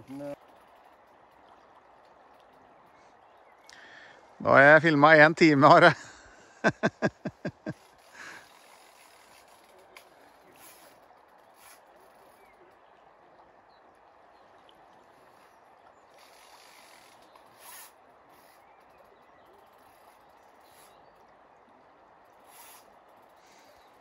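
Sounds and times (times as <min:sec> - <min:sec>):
short scratchy rasps: 0:07.6 - 0:12.7, 0:16.1 - 0:21.2, 0:22.3 - 0:24.0.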